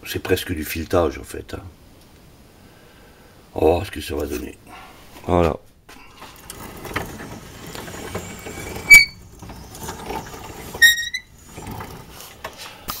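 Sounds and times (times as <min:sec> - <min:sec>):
machine mechanical clatter: 0:06.4 - 0:12.5
high metallic squeaks: 0:06.6 - 0:12.0.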